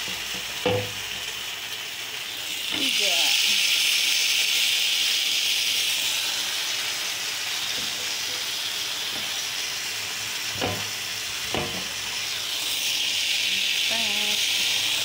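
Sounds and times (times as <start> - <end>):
chicken sizzling in oil: 0.0 - 15.0
fork knocking pan: 0.1 - 1.2, 10.6 - 10.9, 11.5 - 12.0.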